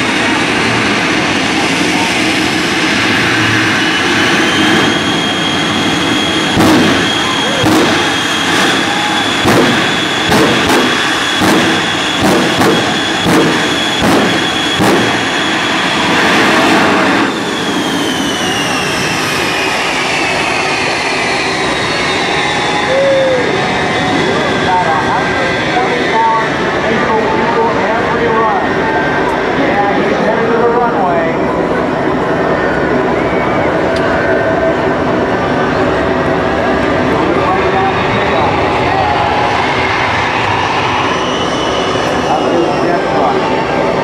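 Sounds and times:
jet engine turbine whine: 0.0s - 44.0s
loud flame bursts: 3.8s - 18.8s.

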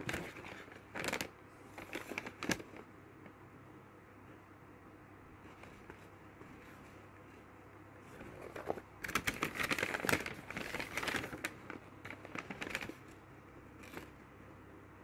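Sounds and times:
paper bag rustling: 0.0s - 2.8s, 8.0s - 13.2s.

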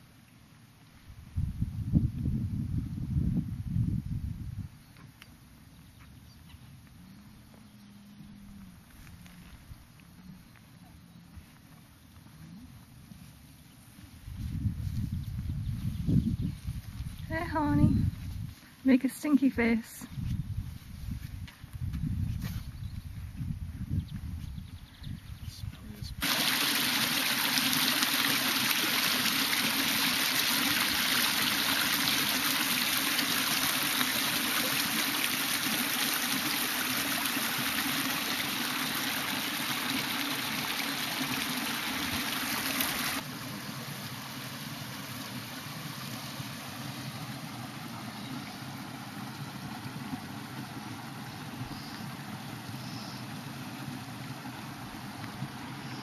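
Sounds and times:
rushing water: 26.2s - 56.0s.

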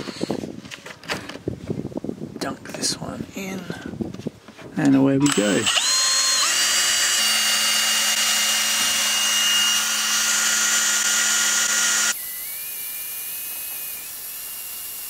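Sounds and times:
cordless drill motor whine: 5.2s - 15.0s.

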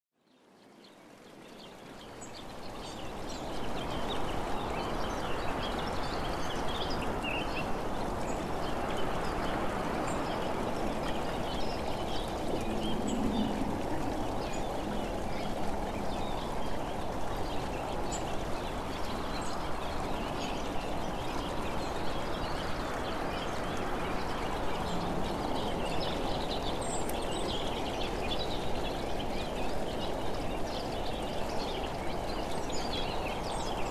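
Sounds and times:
steady rushing outdoor noise: 0.4s - 33.9s.

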